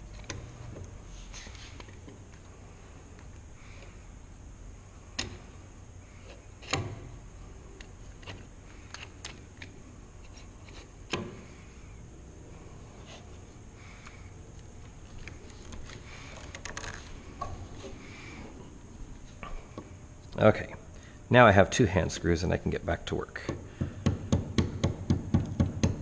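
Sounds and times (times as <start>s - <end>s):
sharp wooden knocks: 23.4s - 26.0s.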